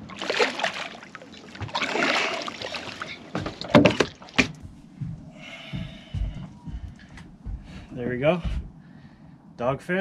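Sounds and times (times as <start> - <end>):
fish thrashing and splashing: 0.0 - 4.6
knocks and thumps against boat: 0.1 - 8.8.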